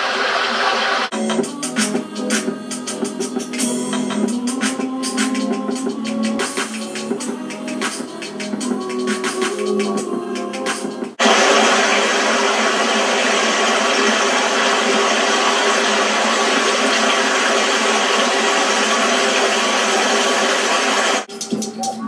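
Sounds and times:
rhythmic electronic music: 1.1s - 11.3s, 19.8s - 22.0s.

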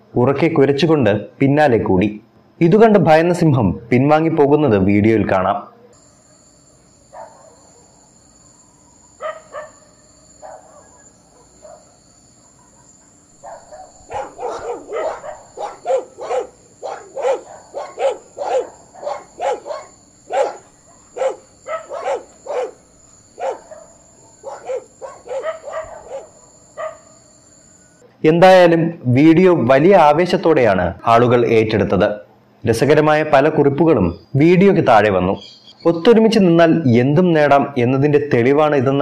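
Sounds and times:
dogs barking: 7.1s - 8.0s, 9.2s - 27.2s.

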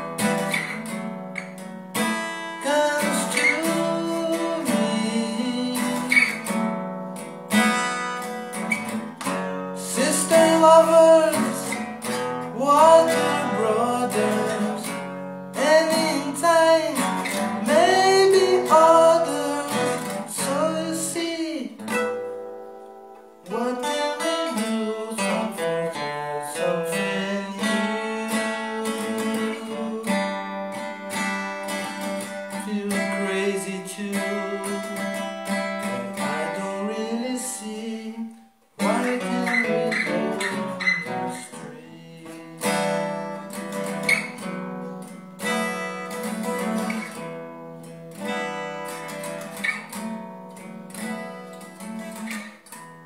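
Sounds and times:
acoustic guitar strummed and picked: 0.0s - 53.0s
man singing: 2.6s - 6.6s, 9.7s - 22.1s, 23.4s - 44.4s.

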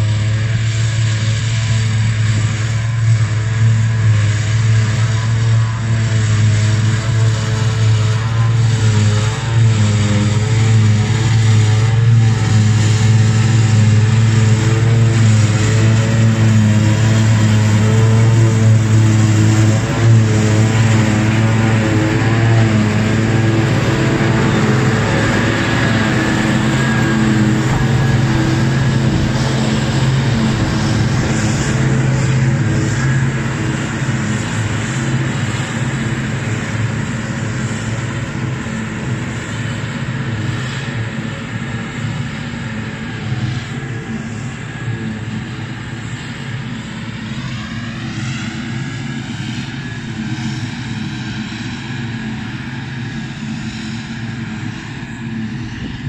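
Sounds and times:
forage harvester droning: 0.0s - 56.0s
rising tone: 12.4s - 34.9s.

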